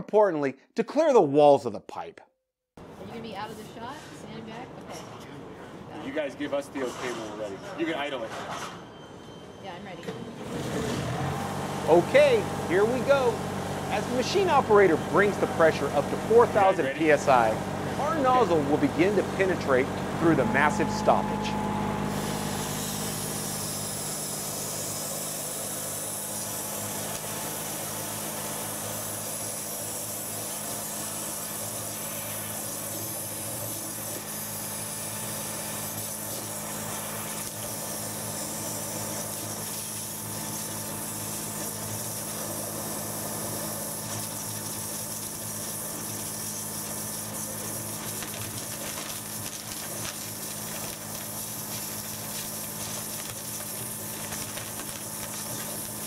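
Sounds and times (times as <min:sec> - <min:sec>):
engine low hum: 0:10.4 - 0:24.1.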